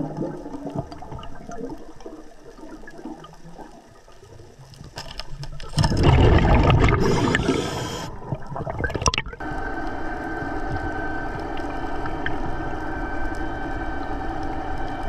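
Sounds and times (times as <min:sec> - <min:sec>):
regulator bubbles rushing: 0:00.0 - 0:04.6, 0:05.8 - 0:09.8
electric motor hum with whine: 0:07.0 - 0:08.2, 0:09.4 - 0:15.0.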